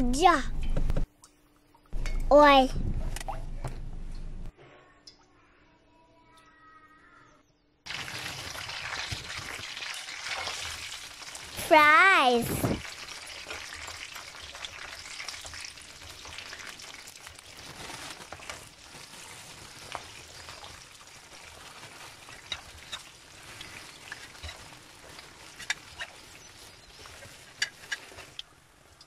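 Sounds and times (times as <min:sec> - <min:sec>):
fries sizzling in hot oil: 0:07.9 - 0:29.0.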